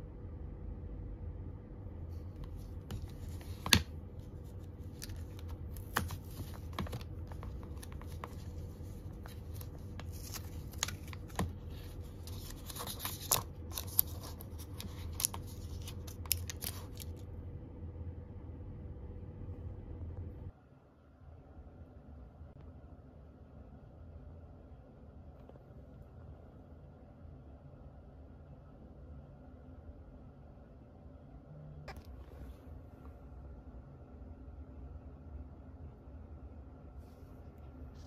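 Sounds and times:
steady low hum: 0:00.0 - 0:38.0
candy wrapper crinkling and ripping: 0:04.9 - 0:17.2.

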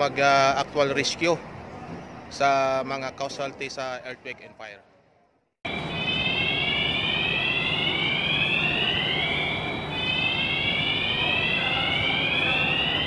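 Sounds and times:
siren rising whoop: 0:05.7 - 0:13.0.

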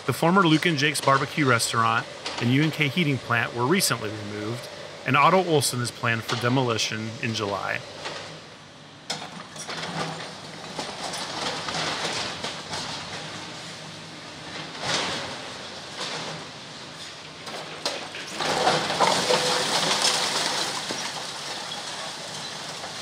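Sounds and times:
excavator demolishing building: 0:00.0 - 0:23.0
rubble crunching and tumbling: 0:17.6 - 0:23.0.

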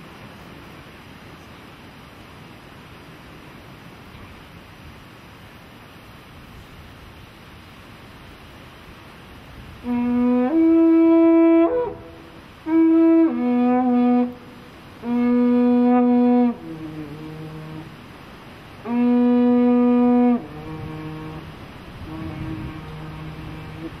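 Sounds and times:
war trumpet blasts: 0:09.8 - 0:18.0, 0:18.8 - 0:24.0.

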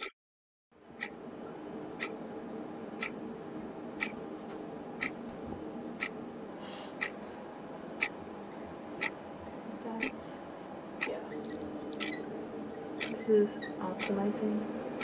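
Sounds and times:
low room hum: 0:00.8 - 0:15.0
clock ticking: 0:12.0 - 0:12.2, 0:13.0 - 0:14.4.

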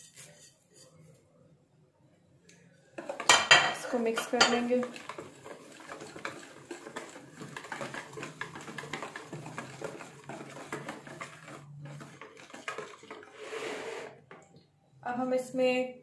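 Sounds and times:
whisk clicking against plastic bowl: 0:04.3 - 0:13.2.

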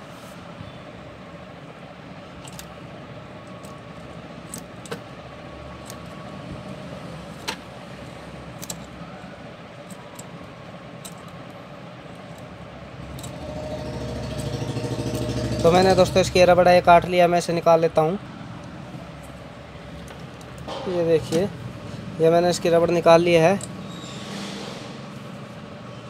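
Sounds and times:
wire cutters clicking and snipping: 0:05.8 - 0:06.2, 0:08.5 - 0:09.0.

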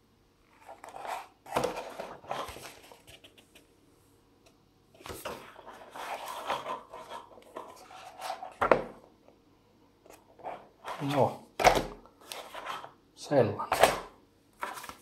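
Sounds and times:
paper pages rustling: 0:00.5 - 0:03.7, 0:05.0 - 0:08.8, 0:10.1 - 0:12.9, 0:14.6 - 0:15.0.

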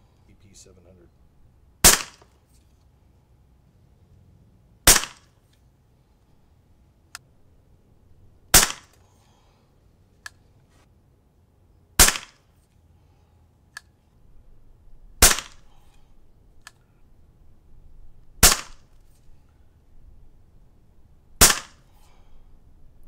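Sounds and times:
air pistol shots: 0:01.8 - 0:02.4, 0:04.9 - 0:05.4, 0:08.5 - 0:09.0, 0:12.0 - 0:12.4, 0:15.2 - 0:15.8, 0:18.4 - 0:19.1, 0:21.4 - 0:22.2.

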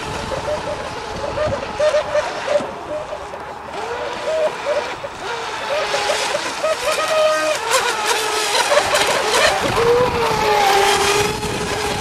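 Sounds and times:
model boat engines buzzing: 0:00.0 - 0:12.0.

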